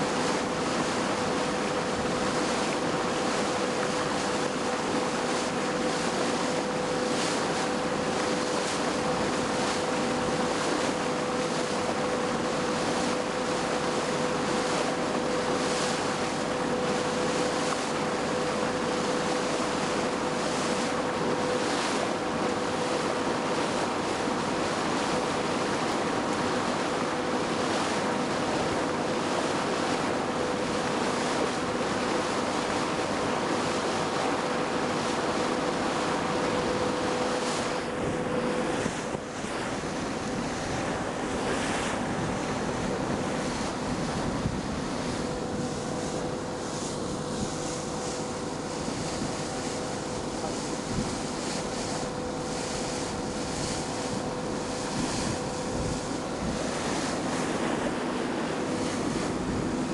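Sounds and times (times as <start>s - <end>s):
boat engine hum: 0.0s - 59.9s
wind and water rushing: 0.0s - 59.9s.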